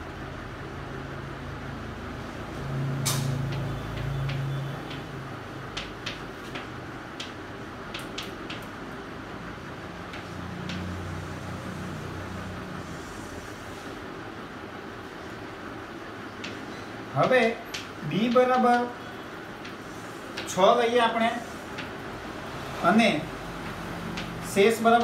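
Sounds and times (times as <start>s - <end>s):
chalk tapping on chalkboard: 5.7s - 8.7s, 19.6s - 20.6s.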